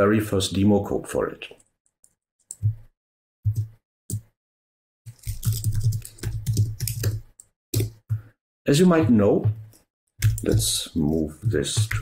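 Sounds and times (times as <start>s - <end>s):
typing on computer keyboard: 5.1s - 8.0s, 10.2s - 12.0s.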